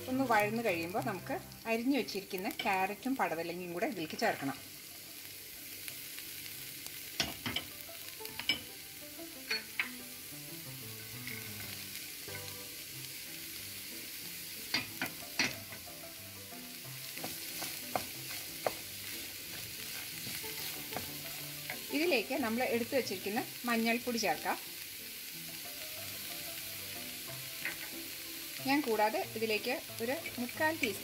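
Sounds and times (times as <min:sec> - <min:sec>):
vegetables sizzling in oil: 0:00.0 - 0:31.0
spatula knocking against pan: 0:17.2 - 0:18.9.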